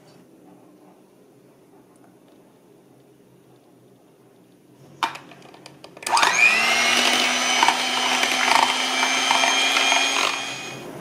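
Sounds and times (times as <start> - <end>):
electric hand mixer whining: 6.0 - 10.8.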